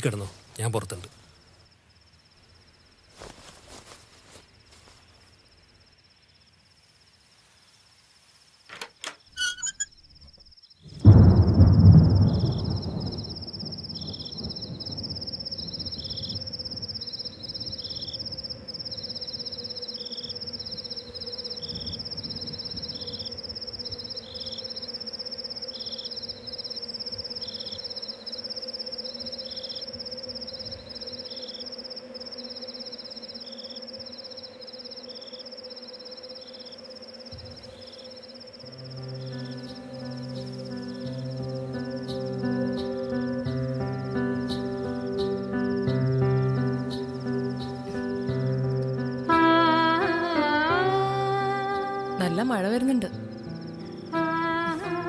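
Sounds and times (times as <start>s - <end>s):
crickets trilling and chirping: 0.0s - 55.0s.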